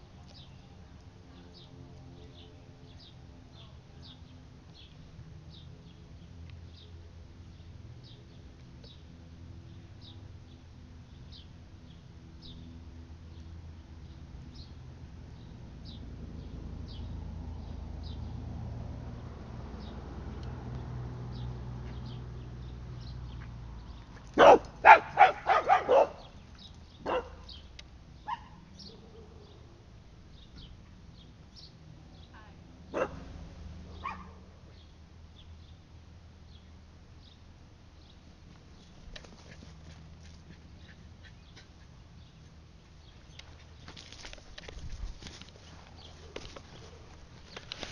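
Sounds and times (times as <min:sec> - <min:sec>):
dog barking: 0:24.4 - 0:26.3, 0:27.0 - 0:27.5, 0:28.3 - 0:29.4, 0:32.9 - 0:33.2, 0:33.9 - 0:34.4.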